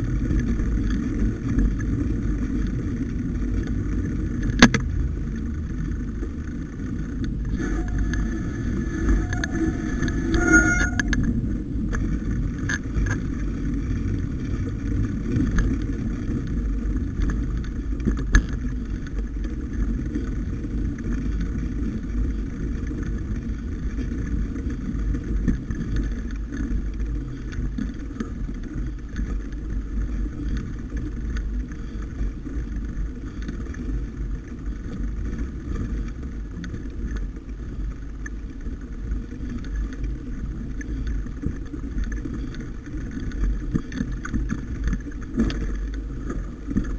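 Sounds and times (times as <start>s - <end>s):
wind buffeting microphone: 0.0s - 36.9s
low rumble: 0.0s - 37.0s.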